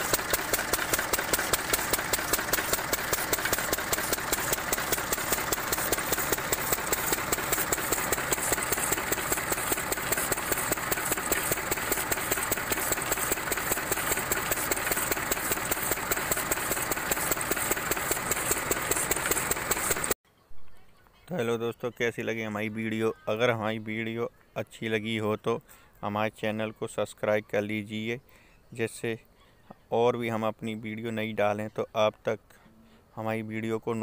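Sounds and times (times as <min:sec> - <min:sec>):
diesel water pump engine running: 0:00.0 - 0:20.2.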